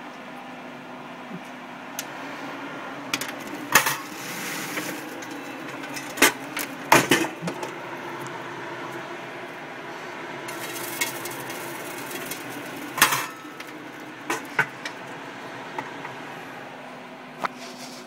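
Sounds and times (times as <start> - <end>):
popcorn machine hum: 0.0 - 18.0
metallic clanks of kettle: 4.8 - 7.7.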